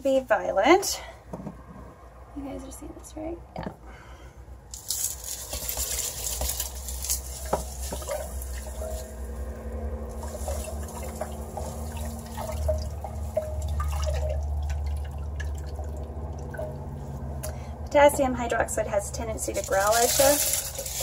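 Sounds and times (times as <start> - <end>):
dissolving lye low rumble: 7.0 - 20.6.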